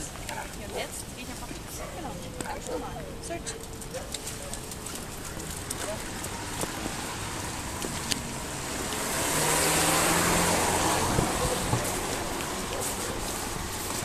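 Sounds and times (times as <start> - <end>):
car tyres hissing on wet road: 6.3 - 14.0.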